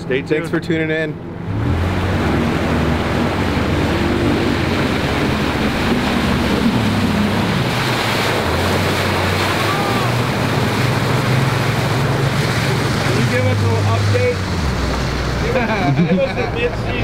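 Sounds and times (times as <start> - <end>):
outboard boat motors: 0.0 - 17.0
water rushing past hull: 0.7 - 17.0
wind buffeting microphone: 1.4 - 13.6.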